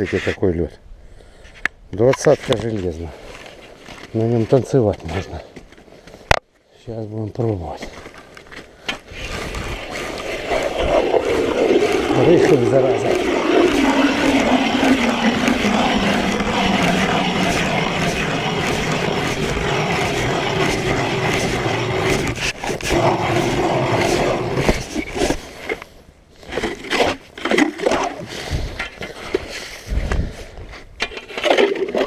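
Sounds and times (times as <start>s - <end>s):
ice auger grinding through ice: 9.1s - 25.8s.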